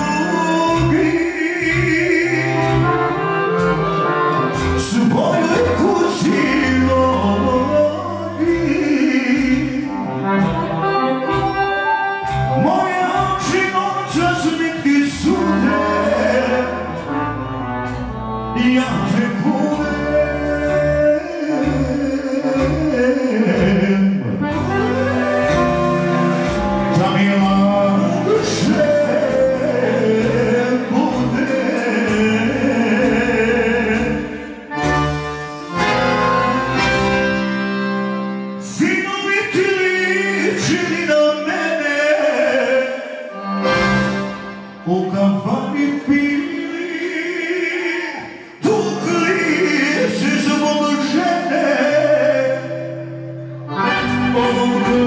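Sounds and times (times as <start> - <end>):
man singing into a microphone: 0.0 - 3.2, 4.8 - 10.2, 12.5 - 17.2, 18.5 - 25.0, 26.9 - 34.7, 38.6 - 43.5, 44.8 - 55.0
accordion: 0.0 - 47.5, 48.6 - 55.0.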